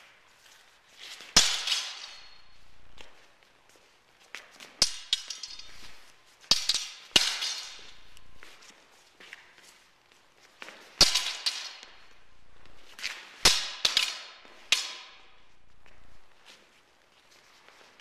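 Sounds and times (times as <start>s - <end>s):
swords clashing: 1.2s - 3.1s, 4.8s - 8.6s, 11.0s - 12.2s, 12.9s - 16.3s.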